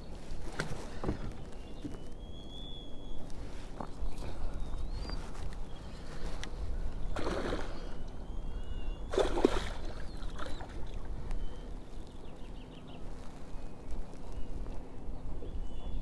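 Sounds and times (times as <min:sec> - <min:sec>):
steady low rumble: 0:00.0 - 0:16.0
water splashing: 0:07.1 - 0:08.0, 0:09.1 - 0:11.1.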